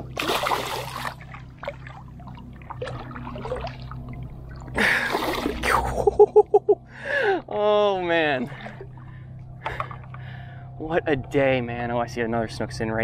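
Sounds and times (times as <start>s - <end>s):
fish thrashing splash: 0.0s - 5.7s
water dripping and trickling: 0.2s - 4.8s.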